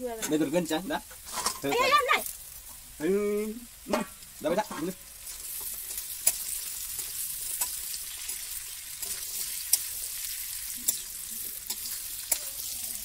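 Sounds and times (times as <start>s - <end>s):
food sizzling in a wok: 0.0s - 13.0s
metal spoon clicking on pan: 5.6s - 8.4s, 10.8s - 12.5s.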